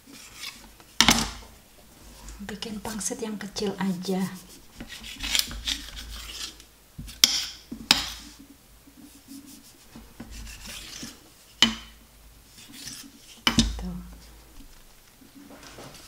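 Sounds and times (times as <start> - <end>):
knife cutting wrappers: 4.9 - 6.6.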